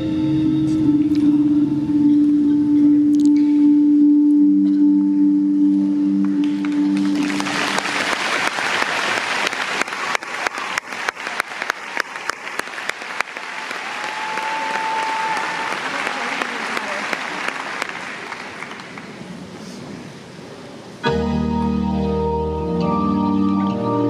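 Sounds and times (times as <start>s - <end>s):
low musical drone: 0.0s - 8.5s, 21.0s - 24.0s
crowd applause and cheering: 6.3s - 19.6s.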